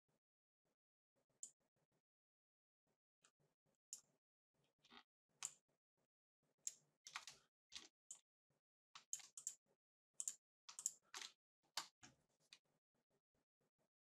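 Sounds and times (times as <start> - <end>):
mouse and keyboard clicks: 7.1 - 8.2, 9.0 - 9.6, 10.2 - 12.1.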